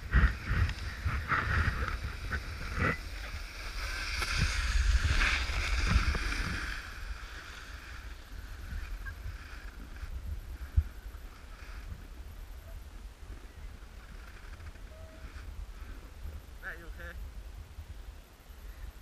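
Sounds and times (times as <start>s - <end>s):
snowboard scraping over snow: 0.0s - 12.6s
wind rumbling on microphone: 0.0s - 19.0s.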